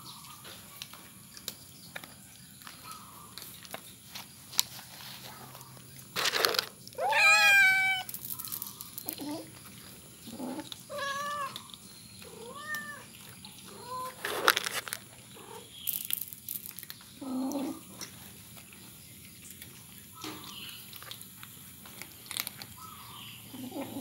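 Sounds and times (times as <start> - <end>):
cats meowing: 7.0 - 8.1, 10.3 - 14.3.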